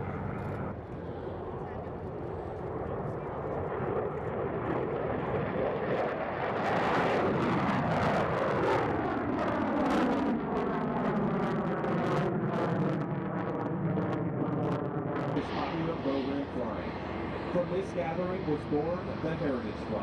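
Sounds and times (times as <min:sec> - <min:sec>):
jet engines low pass: 0:00.0 - 0:20.0.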